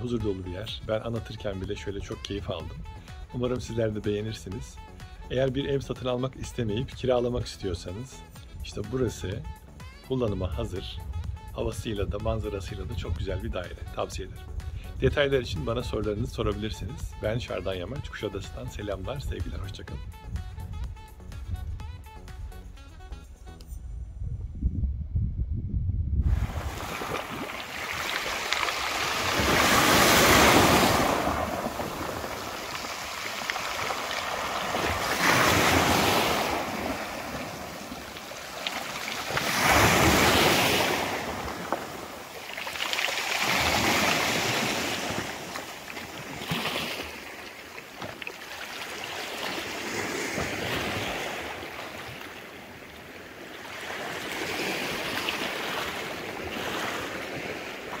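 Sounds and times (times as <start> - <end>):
waves washing onto pebble beach: 26.3 - 47.6.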